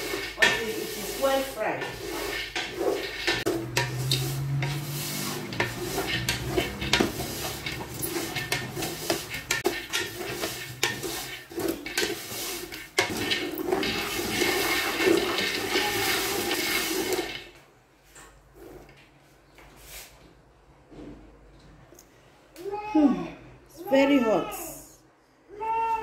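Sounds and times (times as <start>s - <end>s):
spoon scraping metal pot: 0.0s - 17.5s.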